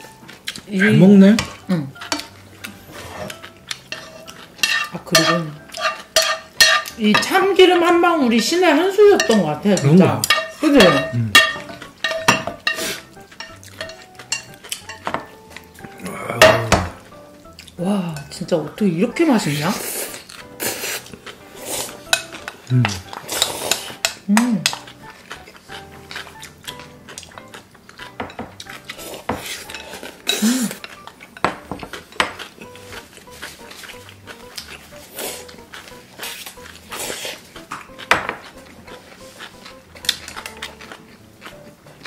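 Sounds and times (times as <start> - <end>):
frying pan scraping: 0.0 - 17.5, 18.2 - 42.0
utensils clinking on glass: 9.0 - 12.8
chopsticks clicking on glass bowls: 9.2 - 16.8
people slurping noodles: 19.8 - 22.0, 22.7 - 24.0, 30.3 - 30.8.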